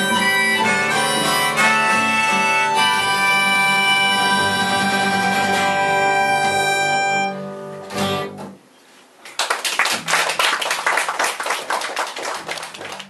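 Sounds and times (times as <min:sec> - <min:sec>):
acoustic band playing: 0:00.0 - 0:08.7
audience applause: 0:09.3 - 0:13.0.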